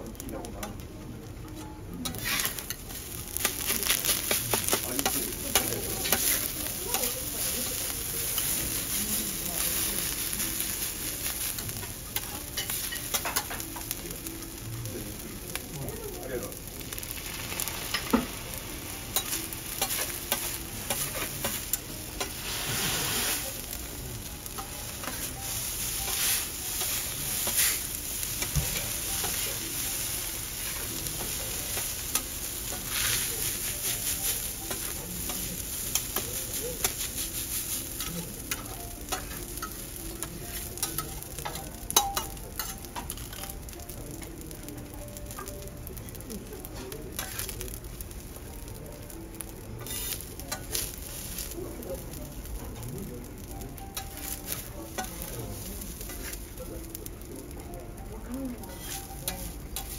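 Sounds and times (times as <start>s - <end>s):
fried rice sizzling on a griddle: 0.0s - 59.9s
metal spatula scraping a griddle: 2.0s - 13.9s, 19.1s - 23.7s, 24.5s - 43.6s, 46.1s - 47.6s, 49.8s - 51.6s, 53.9s - 56.5s, 58.6s - 59.9s.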